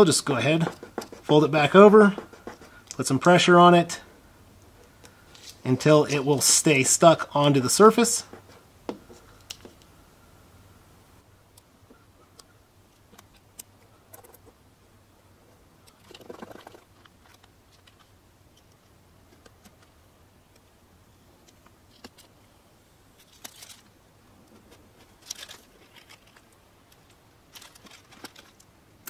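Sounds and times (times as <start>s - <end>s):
paper rustling and crinkling: 0.0s - 2.8s, 23.2s - 28.7s.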